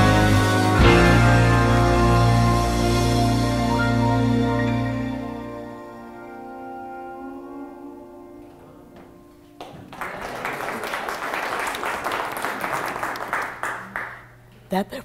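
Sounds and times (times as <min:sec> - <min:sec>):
instrumental background music: 0:00.0 - 0:09.6
people applauding: 0:09.6 - 0:14.5.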